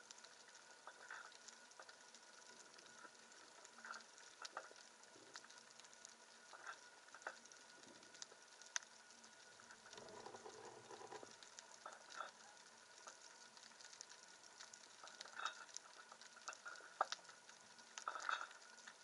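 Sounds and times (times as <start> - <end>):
underwater clicks and crackles: 0.0 - 19.0
underwater fluttering: 9.8 - 12.2.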